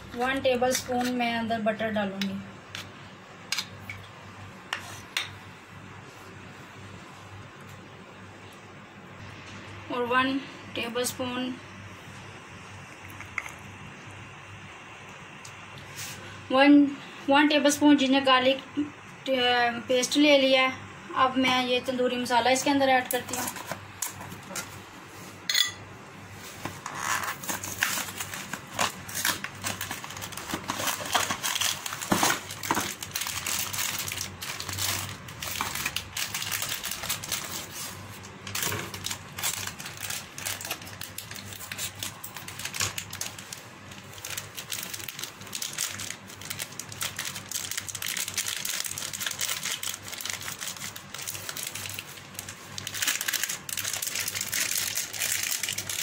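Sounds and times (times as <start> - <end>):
foil packet crinkling: 26.9 - 56.0.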